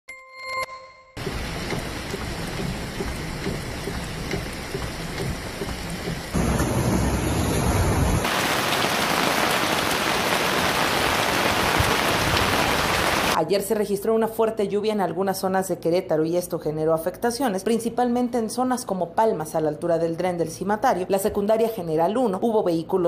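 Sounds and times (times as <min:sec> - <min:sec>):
heavy rain pouring: 0:01.2 - 0:13.4.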